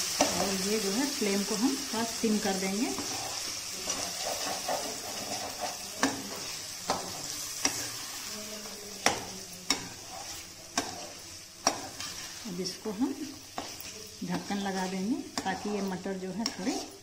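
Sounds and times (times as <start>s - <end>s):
peas sizzling in oil: 0.0s - 17.0s
metal spatula scraping pan: 2.3s - 17.0s
spatula knocking pan side: 4.2s - 8.0s, 8.6s - 12.3s, 13.2s - 17.0s.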